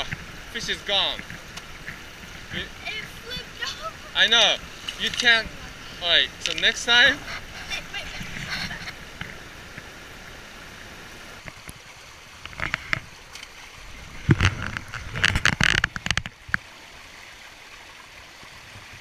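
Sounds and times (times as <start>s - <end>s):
creek water running over rocks: 0.0s - 19.0s
knocks and scrapes: 6.4s - 9.4s, 14.1s - 16.6s.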